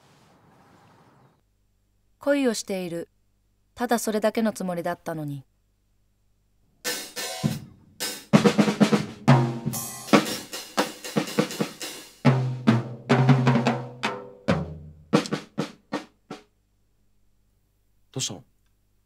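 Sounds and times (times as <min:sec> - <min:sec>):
drum kit playing: 0:06.9 - 0:16.5.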